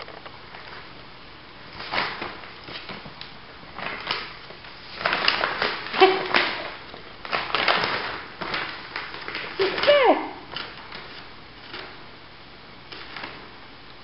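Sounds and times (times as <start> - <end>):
woven bag rustling and crinkling: 1.6 - 12.2.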